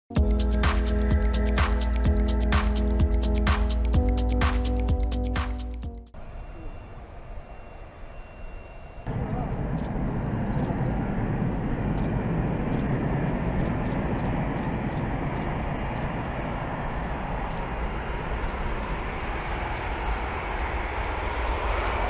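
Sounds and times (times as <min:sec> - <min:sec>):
jet engines roaring and whining: 0:09.0 - 0:22.0.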